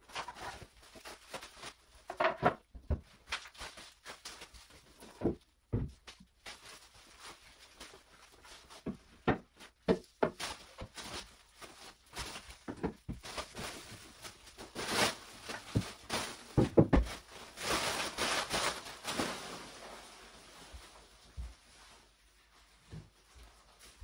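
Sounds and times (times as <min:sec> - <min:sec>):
plastic wrapping rustling: 0:00.0 - 0:24.0
wood panels knocking and scraping: 0:16.6 - 0:17.1
footsteps on tiled floor: 0:20.7 - 0:21.9.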